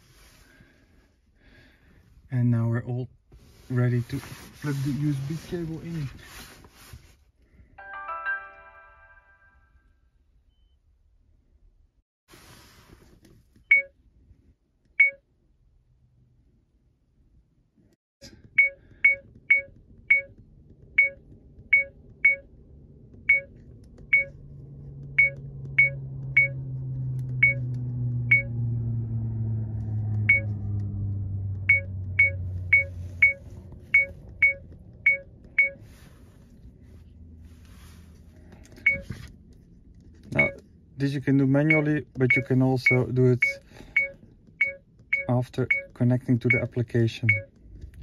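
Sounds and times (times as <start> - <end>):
low rumble: 20.0 - 41.0
high electronic beeps: 27.4 - 27.6, 40.4 - 40.6, 41.7 - 47.5.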